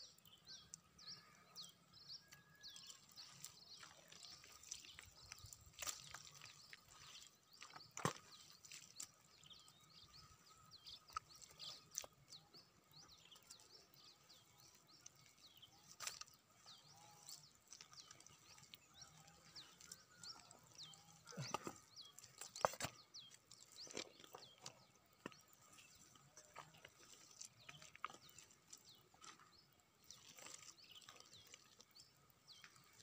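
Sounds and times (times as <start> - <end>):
hands squelching in mud: 2.8 - 10.3.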